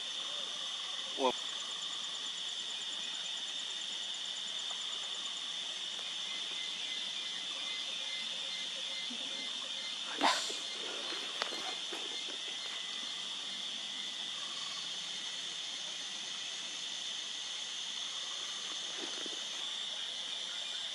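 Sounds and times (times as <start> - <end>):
insects droning: 0.0 - 20.9.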